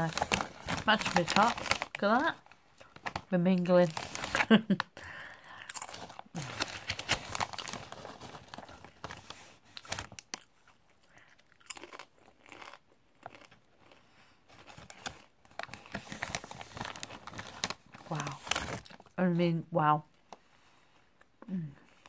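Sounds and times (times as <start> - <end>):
crunching and chewing crisps: 0.0 - 2.2, 5.1 - 19.2, 21.7 - 22.0.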